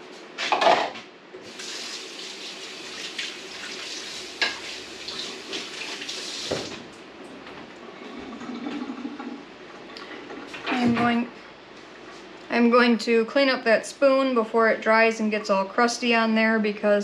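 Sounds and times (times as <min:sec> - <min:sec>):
tap running into sink: 0:04.4 - 0:06.8.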